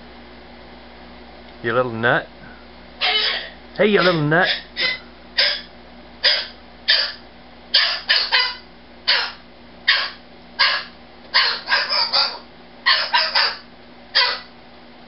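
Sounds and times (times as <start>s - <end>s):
cockatoo screeching: 3.0s - 14.5s.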